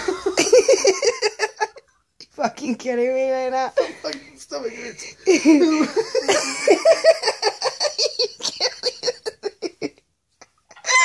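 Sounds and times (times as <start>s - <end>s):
person laughing hard: 0.0s - 1.8s, 5.4s - 10.0s.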